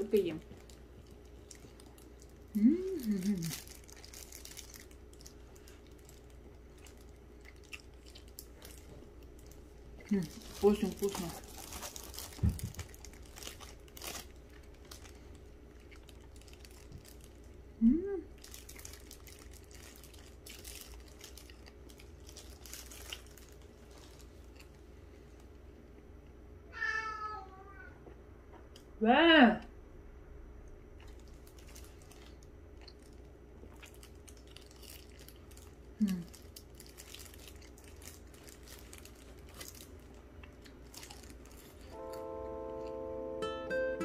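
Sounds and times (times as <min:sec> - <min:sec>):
chewing and crunching: 0:00.0 - 0:17.7, 0:18.3 - 0:26.4, 0:30.7 - 0:43.0
low steady hum: 0:00.0 - 0:44.0
food packaging rustling: 0:03.1 - 0:17.5, 0:18.4 - 0:24.8, 0:31.1 - 0:42.3.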